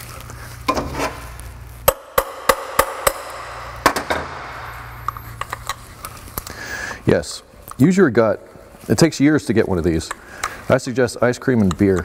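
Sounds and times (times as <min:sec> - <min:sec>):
hammer striking a punch: 0:01.9 - 0:04.7.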